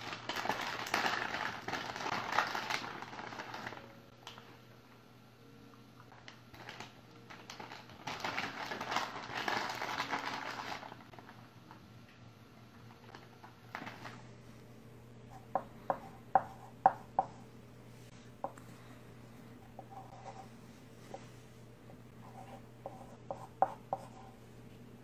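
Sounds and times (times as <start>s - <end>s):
plastic pouch crinkling: 0.0s - 4.4s, 6.1s - 11.8s, 13.0s - 14.2s.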